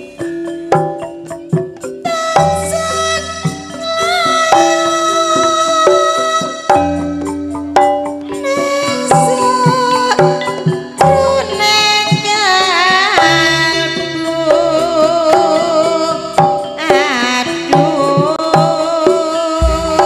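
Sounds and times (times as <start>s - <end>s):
ornamented melody line: 0.0s - 18.5s, 19.6s - 20.0s
person singing: 2.0s - 7.0s, 8.3s - 20.0s
hand drum strokes: 19.5s - 20.0s.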